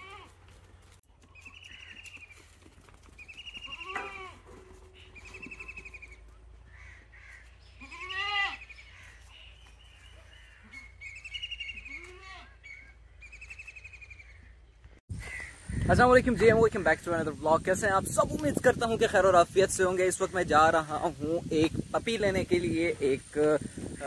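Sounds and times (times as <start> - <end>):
deep goat bleats: 0.0 - 0.4, 7.8 - 8.7, 11.8 - 12.6
high quavering bleats: 3.6 - 8.7, 11.8 - 12.6.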